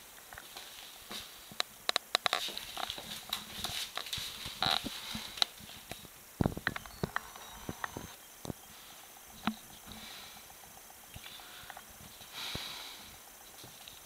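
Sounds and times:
claws clicking on tiled floor: 1.5 - 7.3.

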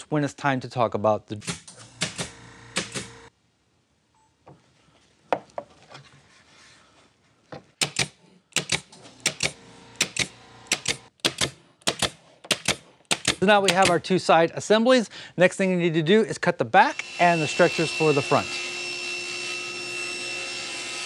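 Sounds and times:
pin nailer firing: 1.4 - 3.3, 7.8 - 14.0.

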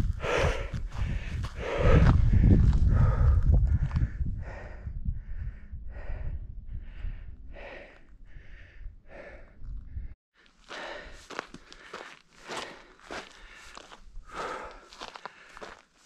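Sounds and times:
wind rumbling on microphone: 0.0 - 10.2
scuffing footsteps: 10.5 - 16.0.

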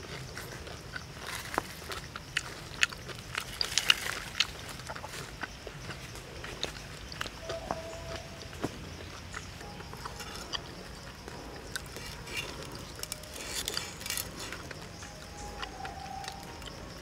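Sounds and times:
chewing on crisp skin: 0.0 - 17.0.

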